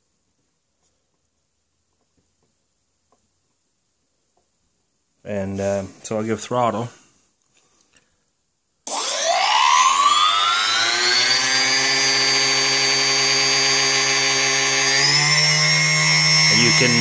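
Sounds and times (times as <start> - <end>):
electric motor whining: 8.9 - 17.0.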